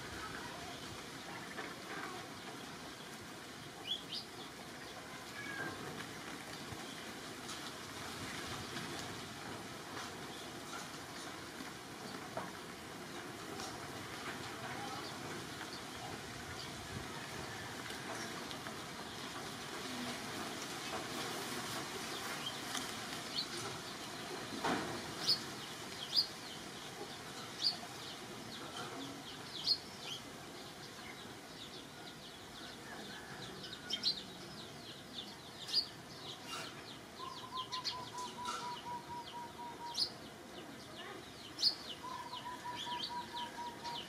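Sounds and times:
small birds chirping: 0:20.4 - 0:44.0.

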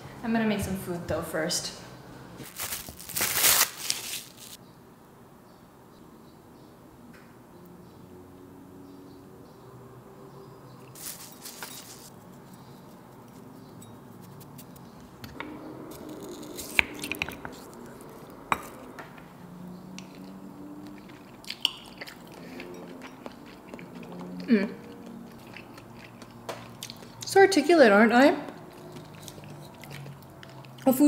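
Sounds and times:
seasoning bottles handled: 0:10.9 - 0:12.1.

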